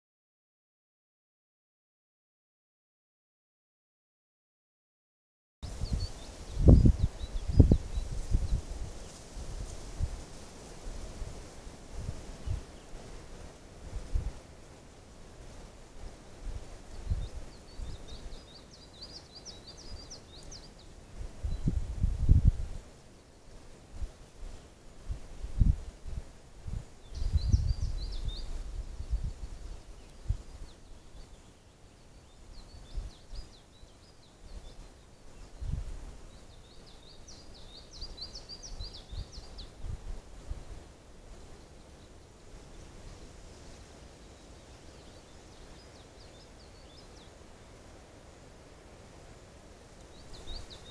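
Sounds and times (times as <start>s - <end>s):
songbird singing: 5.6s - 9.4s, 11.9s - 14.4s, 16.4s - 48.4s, 49.9s - 50.9s
wind gusts on microphone: 5.6s - 31.5s, 32.2s - 33.6s, 34.4s - 48.1s
songbird twittering: 16.9s - 21.8s, 27.0s - 39.9s, 50.1s - 50.9s.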